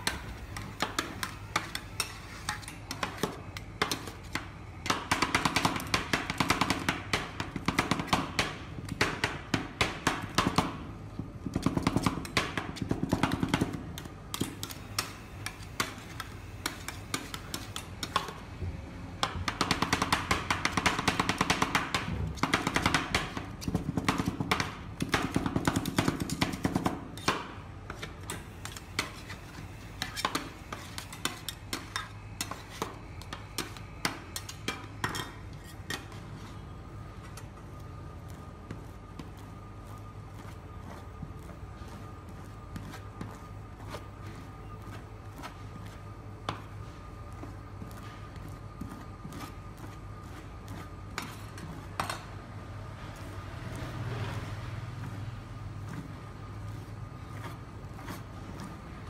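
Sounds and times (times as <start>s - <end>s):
metal spatulas chopping on cold plate: 0.0s - 10.8s, 19.2s - 36.3s.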